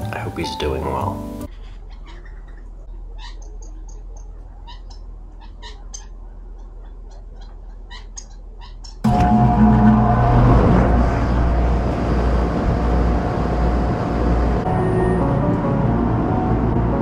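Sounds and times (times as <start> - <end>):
small birds chirping: 1.6 - 9.0
loud noisy rush with hum: 9.1 - 17.0.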